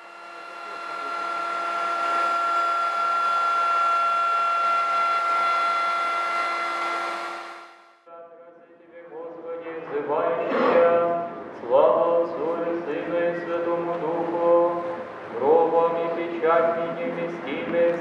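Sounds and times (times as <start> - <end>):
router whining cutting wood: 0.0 - 7.7.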